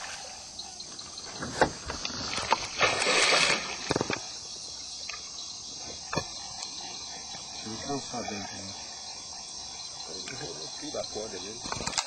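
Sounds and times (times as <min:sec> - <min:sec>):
night insects chirping: 0:00.0 - 0:12.0
water splash: 0:01.6 - 0:04.2.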